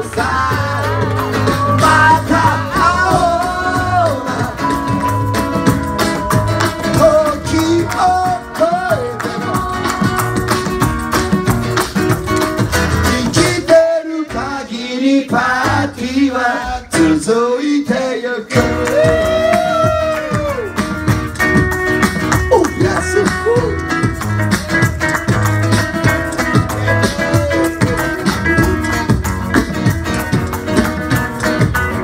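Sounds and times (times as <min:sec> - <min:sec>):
man singing: 0:00.0 - 0:04.9, 0:06.1 - 0:09.8, 0:12.9 - 0:20.1
acoustic guitar: 0:00.0 - 0:32.0
percussion: 0:00.0 - 0:32.0
hand claps: 0:04.6 - 0:12.8, 0:18.6 - 0:31.9.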